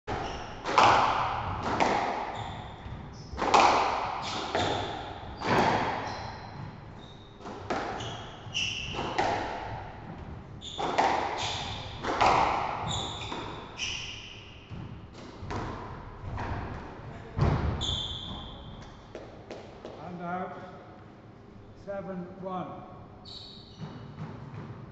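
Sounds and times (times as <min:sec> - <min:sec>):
squash ball cracking off rackets: 0:00.1 - 0:06.1, 0:10.7 - 0:13.6
shoes squeaking on wooden floor: 0:02.2 - 0:09.4, 0:10.5 - 0:14.9, 0:17.8 - 0:18.9.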